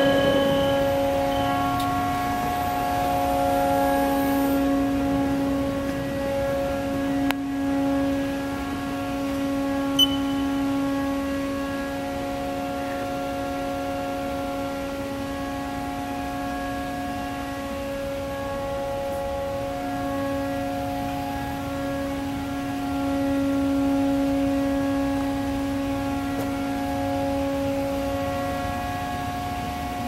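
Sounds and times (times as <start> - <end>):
short high beep: 0.0 - 1.9, 10.0 - 10.6
machine electrical hum: 0.0 - 30.0.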